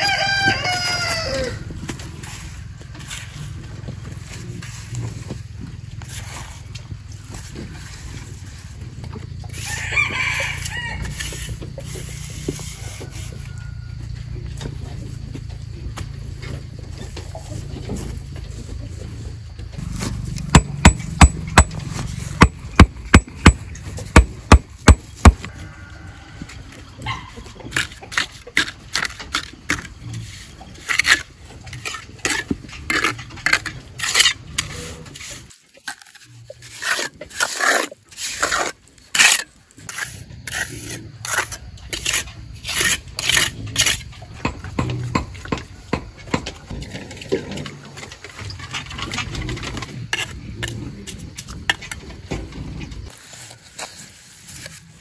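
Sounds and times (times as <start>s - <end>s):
trowel scraping mortar: 19.8s - 25.5s, 27.4s - 44.8s, 49.8s - 51.9s.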